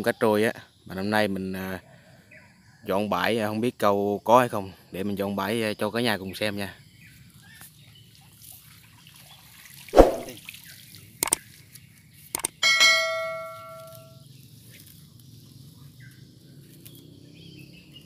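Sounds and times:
pole splashing in water: 10.0s - 10.4s
bell-like ding: 12.6s - 14.2s.

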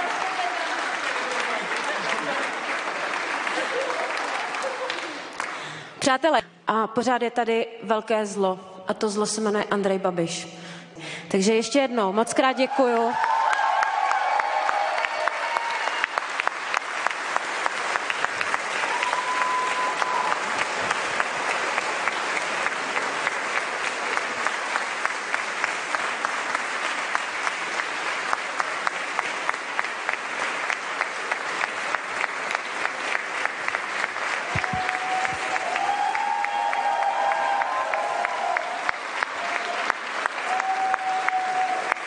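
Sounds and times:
crowd clapping rhythmically: 0.0s - 6.0s, 12.7s - 42.0s.

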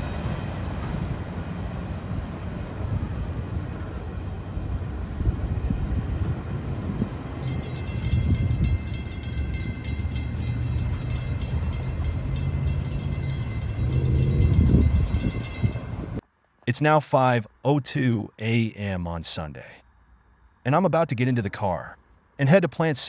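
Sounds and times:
freight train rumbling: 0.0s - 16.2s
crossing warning bell ringing: 6.8s - 16.2s.

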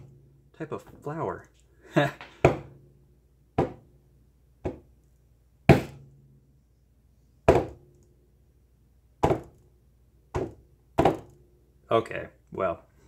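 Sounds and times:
hammer knocking on painting panel: 2.2s - 2.8s, 3.6s - 3.8s, 4.6s - 4.9s, 5.7s - 6.0s, 7.5s - 7.8s, 9.2s - 9.5s, 10.3s - 11.3s.

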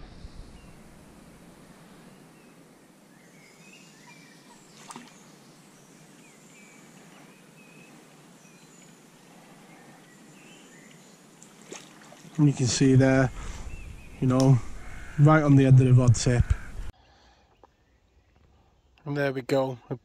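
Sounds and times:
small birds chirping: 2.0s - 20.0s
riverside background: 9.7s - 20.0s.

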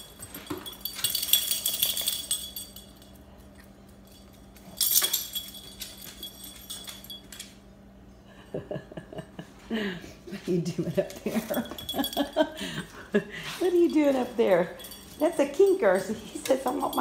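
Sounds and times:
dog collar tags jingling: 0.0s - 7.6s, 11.3s - 12.6s, 13.5s - 17.0s
steady low hum: 0.0s - 17.0s.

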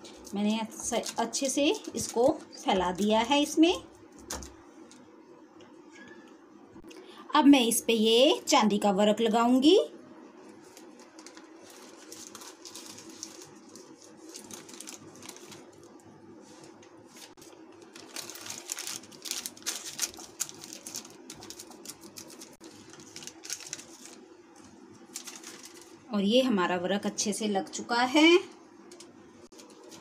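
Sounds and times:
paper crinkling and rustling: 0.0s - 3.2s, 10.4s - 26.0s, 29.0s - 30.0s.

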